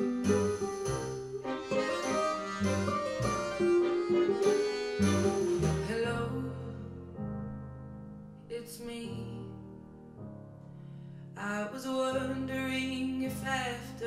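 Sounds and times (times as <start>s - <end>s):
slow music with bass and chords: 0.0s - 8.4s.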